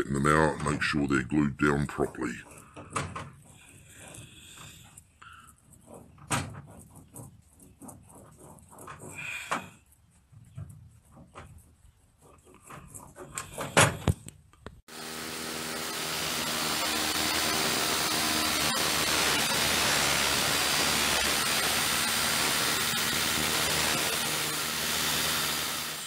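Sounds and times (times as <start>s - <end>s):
circular saw motor whine: 14.9s - 26.0s
grinding hiss of cutting disc: 14.9s - 26.0s.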